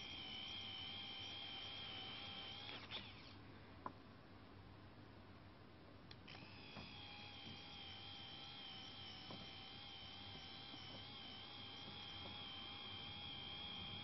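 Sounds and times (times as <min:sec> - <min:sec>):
small motor high whine: 0:00.0 - 0:03.4, 0:06.2 - 0:14.0.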